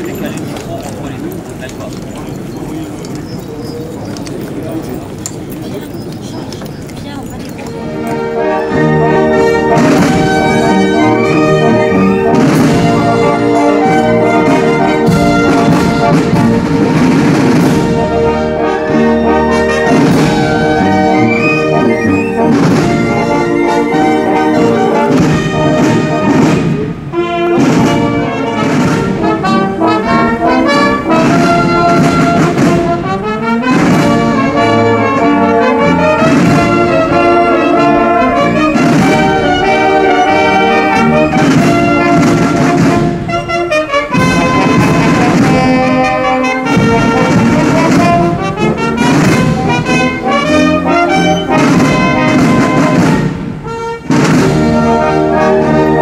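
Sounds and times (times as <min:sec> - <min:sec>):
military brass band playing: 0:00.0 - 0:56.0
drum beat: 0:12.3 - 0:18.2, 0:22.4 - 0:23.8, 0:30.7 - 0:33.1, 0:33.7 - 0:34.7, 0:36.2 - 0:37.4, 0:38.8 - 0:40.2, 0:40.9 - 0:55.7.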